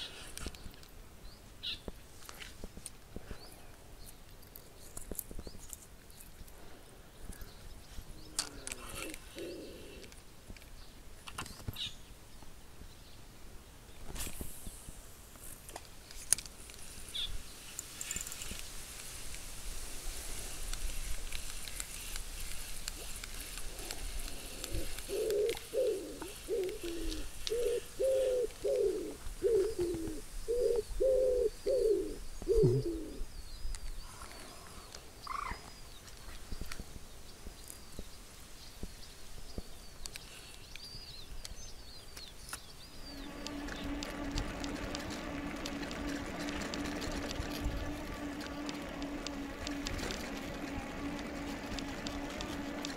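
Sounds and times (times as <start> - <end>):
faint songbird chirping: 0.0 - 2.0, 3.2 - 14.8, 22.3 - 52.9
dove cooing: 8.2 - 10.1, 23.7 - 33.2, 43.2 - 52.9.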